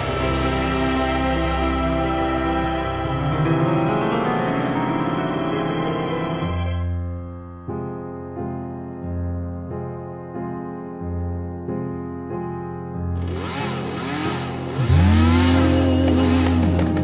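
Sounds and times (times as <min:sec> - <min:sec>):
slow piano music: 0:00.0 - 0:17.0
chainsaw revving: 0:13.2 - 0:17.0.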